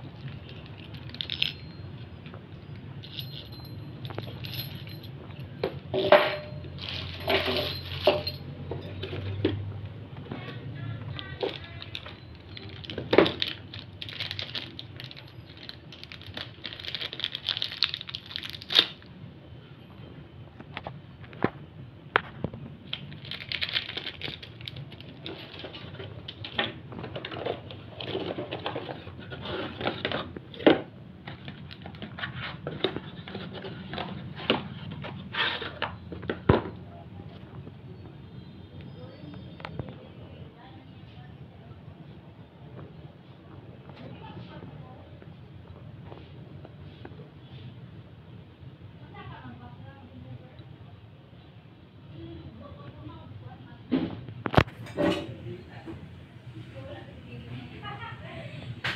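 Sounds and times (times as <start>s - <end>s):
plastic packaging crinkling and tearing: 11.2s - 19.1s, 22.8s - 30.4s.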